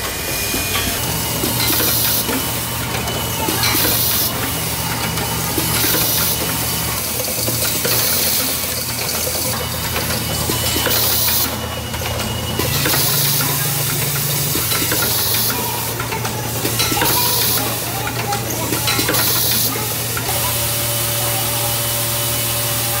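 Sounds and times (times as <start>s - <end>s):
pneumatic air hisses: 0.0s - 8.8s.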